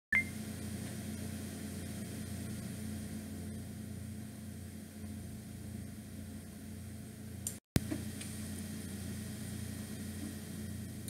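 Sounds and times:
short high beep: 0:00.1 - 0:00.4
steady low hum with hiss: 0:00.2 - 0:11.0.

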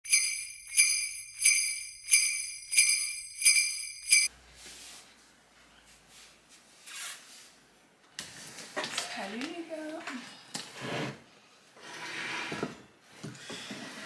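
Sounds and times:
jingle bells shaken: 0:00.0 - 0:04.3
soft rustle: 0:04.5 - 0:09.6.

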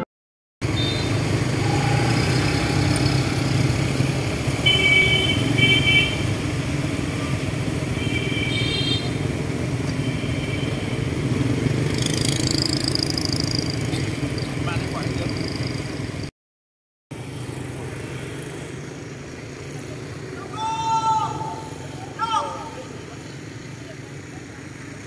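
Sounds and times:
traffic hum: 0:00.6 - 0:16.3, 0:17.1 - 0:25.0
short horn beeps: 0:00.7 - 0:03.3.

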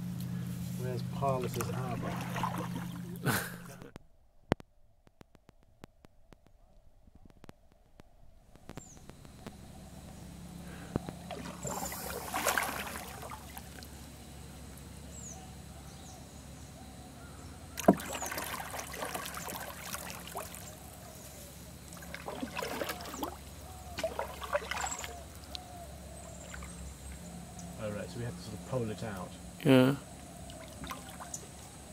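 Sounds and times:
paddle strokes in water: 0:00.6 - 0:03.9, 0:08.5 - 0:14.0, 0:17.8 - 0:27.2, 0:30.4 - 0:31.8.

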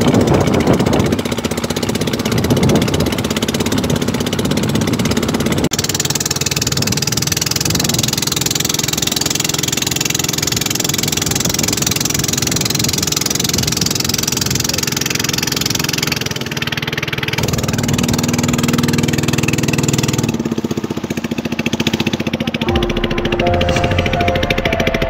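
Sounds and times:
small boat engine running: 0:00.0 - 0:25.0
water rushing along hull: 0:00.0 - 0:25.0
music: 0:22.7 - 0:25.0.

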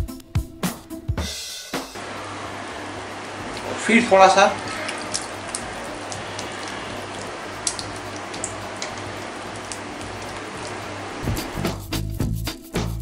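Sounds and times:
music: 0:00.0 - 0:02.0, 0:10.7 - 0:13.0
spatula stirring wet batter: 0:02.6 - 0:11.8.

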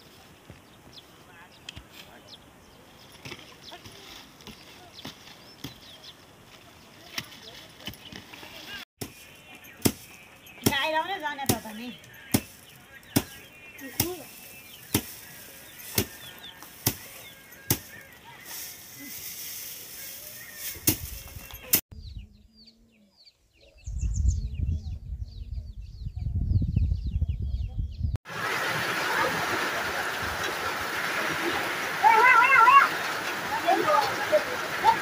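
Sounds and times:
high bird chirps: 0:09.0 - 0:19.2
sharp chopping strikes: 0:09.8 - 0:10.8, 0:13.1 - 0:13.4
steady rushing hiss: 0:11.4 - 0:21.8.

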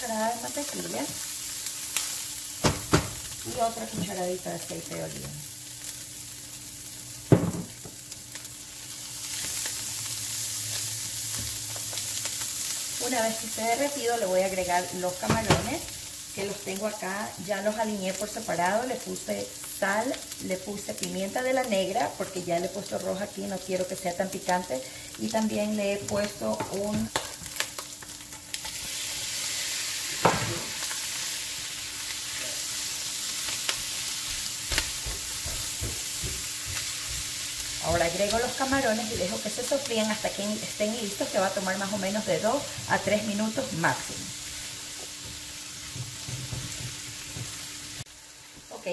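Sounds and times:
corn sizzling in a frying pan: 0:00.0 - 0:48.9
thump: 0:07.3 - 0:07.7.

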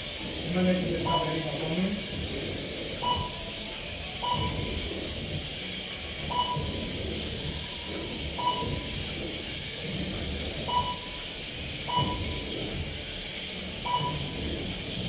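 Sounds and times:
short electronic beeps: 0:03.0 - 0:03.5, 0:04.2 - 0:04.7, 0:06.3 - 0:06.8, 0:08.4 - 0:08.9, 0:10.7 - 0:11.2, 0:11.9 - 0:12.4, 0:13.8 - 0:14.4.

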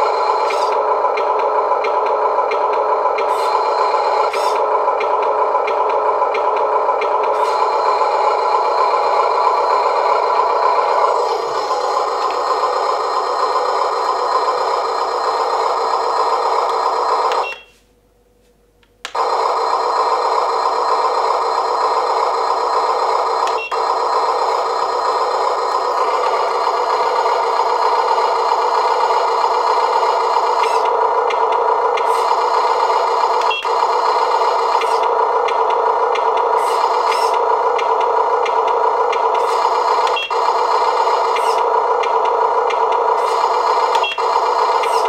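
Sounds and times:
electronic truck engine sound: 0:00.0 - 0:17.8, 0:19.1 - 0:45.0
click: 0:18.8 - 0:19.2.

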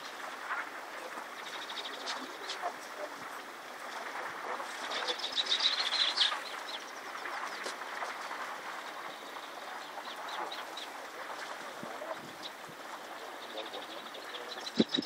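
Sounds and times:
river flowing: 0:00.0 - 0:14.8
bird chirping: 0:13.2 - 0:15.0.

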